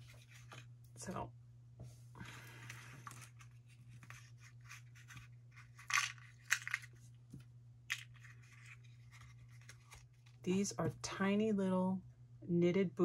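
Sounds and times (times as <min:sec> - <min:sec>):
steady low hum: 0:00.0 - 0:13.0
scratchy rustles of handling: 0:02.5 - 0:06.1.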